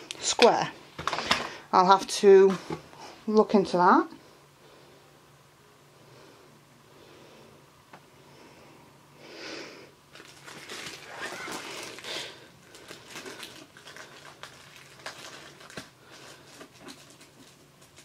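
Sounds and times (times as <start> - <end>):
plastic wrap crinkling: 10.1 - 18.0.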